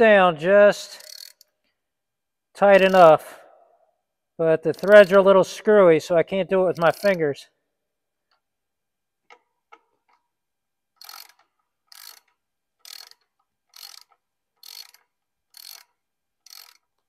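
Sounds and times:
ratcheting screwdriver clicks: 4.7s - 5.2s, 6.8s - 7.2s.

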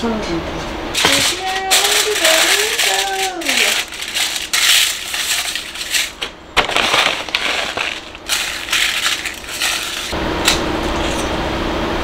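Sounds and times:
salt poured over foil: 1.0s - 6.1s.

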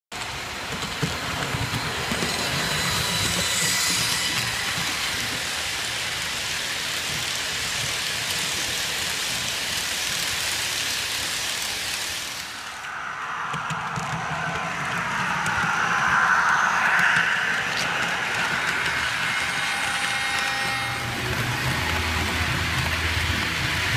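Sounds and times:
model train wheels rattling on track: 0.2s - 12.5s
high motor whine: 12.2s - 23.9s.

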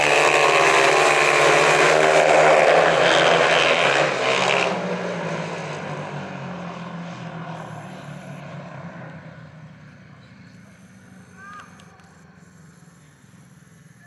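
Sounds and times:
motorcycle engine running hard: 0.0s - 5.5s, 6.3s - 14.0s.

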